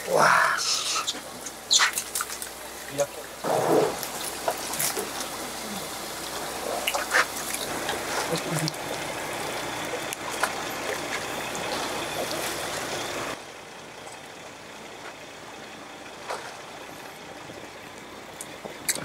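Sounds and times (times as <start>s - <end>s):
water splashing against boat hull: 0.8s - 13.4s.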